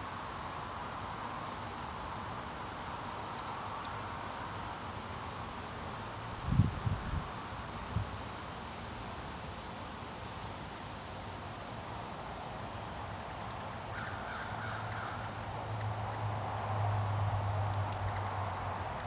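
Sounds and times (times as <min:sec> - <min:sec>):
background hiss: 0:00.0 - 0:19.0
distant vehicle engine hum: 0:13.9 - 0:19.0.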